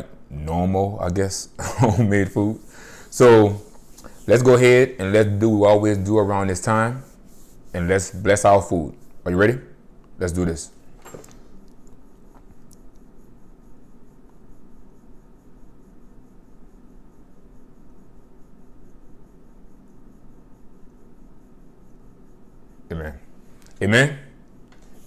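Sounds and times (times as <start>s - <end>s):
faint hiss: 0.8s - 25.0s
faint high pulsing: 11.9s - 25.0s.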